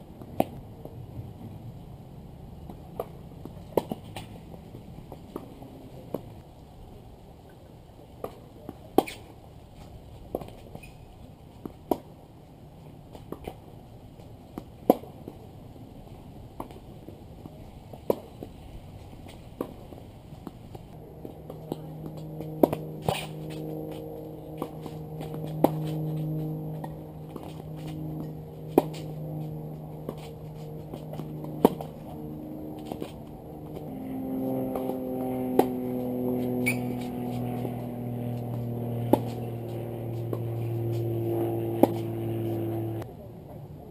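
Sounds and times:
tennis ball bouncing: 0:00.2 - 0:00.6, 0:02.6 - 0:06.4, 0:08.2 - 0:09.4, 0:11.6 - 0:12.2, 0:13.1 - 0:15.4, 0:16.6 - 0:18.6, 0:19.2 - 0:33.9, 0:34.6 - 0:43.0
racket hitting tennis ball: 0:00.2 - 0:01.0, 0:02.6 - 0:06.4, 0:08.2 - 0:09.4, 0:11.6 - 0:12.2, 0:13.1 - 0:15.4, 0:16.6 - 0:18.6, 0:19.2 - 0:43.0
distant tennis shots: 0:02.6 - 0:06.4, 0:08.2 - 0:09.4, 0:12.8 - 0:15.4, 0:19.2 - 0:34.0, 0:34.6 - 0:43.0
hum of held tones: 0:21.0 - 0:43.0.

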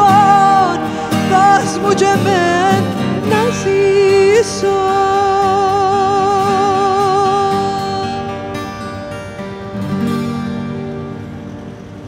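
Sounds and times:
woman singing: 0:00.0 - 0:08.5
acoustic guitar: 0:00.0 - 0:12.0.

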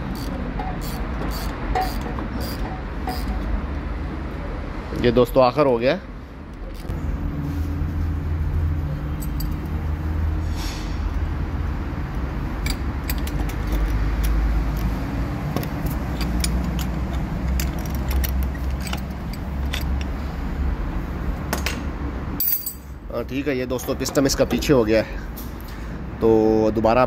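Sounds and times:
metal tools clinking: 0:09.1 - 0:09.7, 0:15.7 - 0:20.2, 0:22.4 - 0:23.0.

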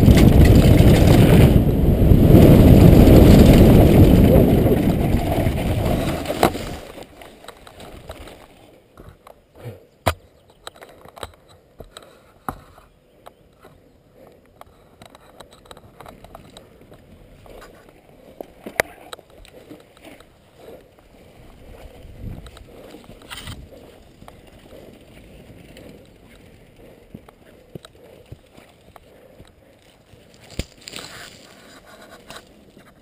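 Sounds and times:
bike clicks and knocks: 0:10.0 - 0:20.4
grass rustling: 0:14.2 - 0:33.0
footsteps in grass: 0:29.6 - 0:33.0.

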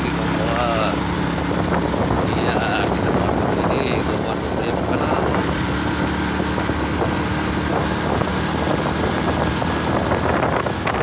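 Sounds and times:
engine hum: 0:00.0 - 0:11.0
wind rushing over microphone: 0:00.0 - 0:11.0.

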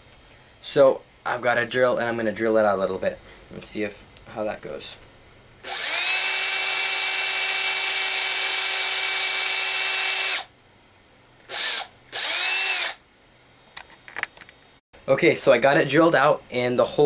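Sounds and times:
cordless drill whining: 0:05.6 - 0:10.5, 0:11.5 - 0:13.0.

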